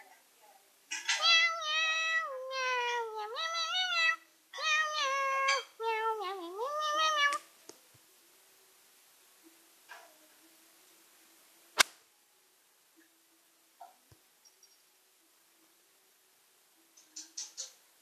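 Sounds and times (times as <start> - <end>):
cat meowing: 1.0 - 7.4.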